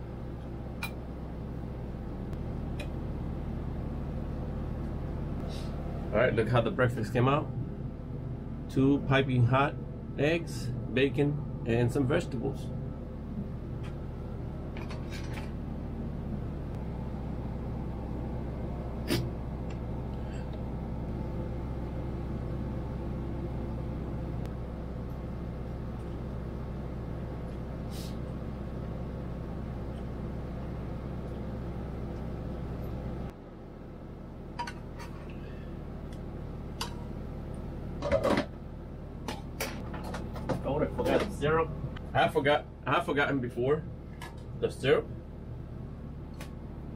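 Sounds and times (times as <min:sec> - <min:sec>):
low mechanical hum: 0:00.0 - 0:46.9.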